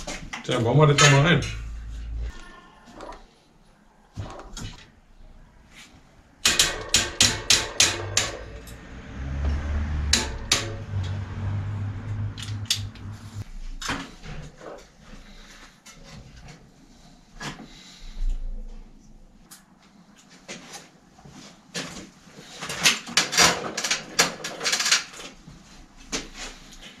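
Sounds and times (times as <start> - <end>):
low hum: 1.2 - 2.3, 7.9 - 13.7
sharp metal knocks: 6.4 - 8.8, 9.8 - 11.4
clatter of metal parts: 22.5 - 25.4.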